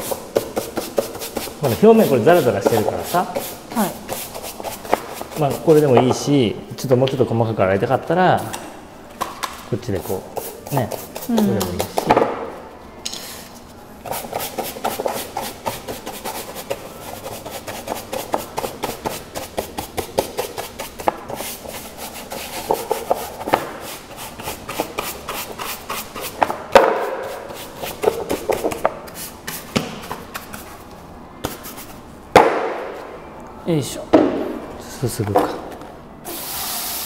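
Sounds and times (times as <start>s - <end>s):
brush scrubbing wet plastic: 0.0s - 5.9s.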